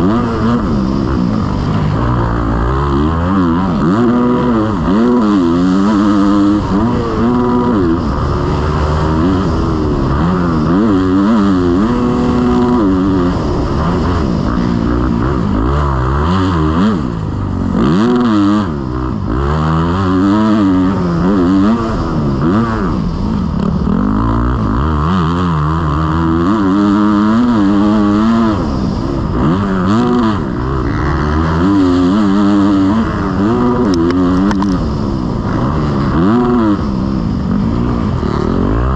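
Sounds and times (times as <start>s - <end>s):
motocross bike engine revving: 0.0s - 38.9s.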